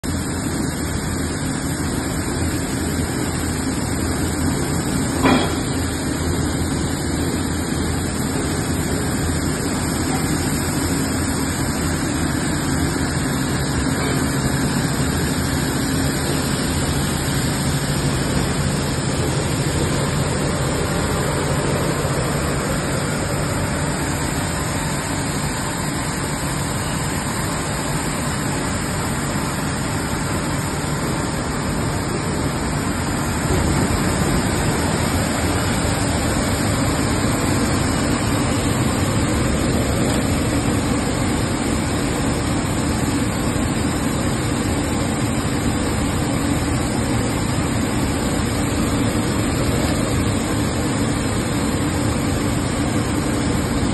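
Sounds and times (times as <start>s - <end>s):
machinery hum: 0.0s - 53.9s
sharp knock: 5.2s - 5.8s.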